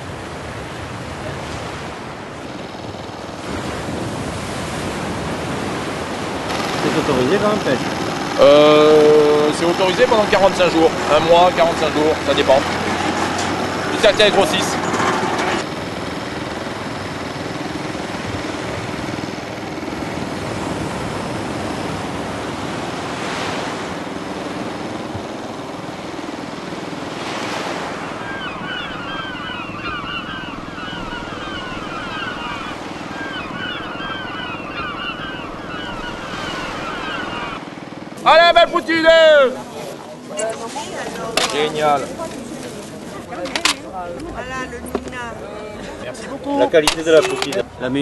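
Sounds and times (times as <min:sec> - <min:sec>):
sea waves washing: 0:00.0 - 0:48.0
small birds chirping: 0:28.0 - 0:37.6.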